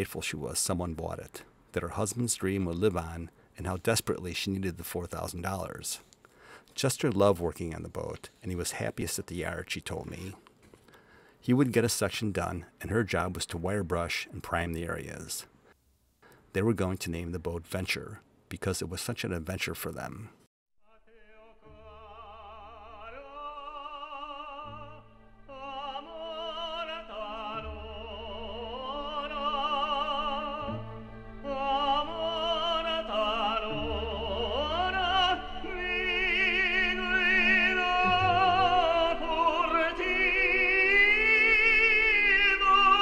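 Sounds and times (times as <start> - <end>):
operatic singing with vibrato: 20.9 - 43.0
orchestral accompaniment: 24.8 - 43.0.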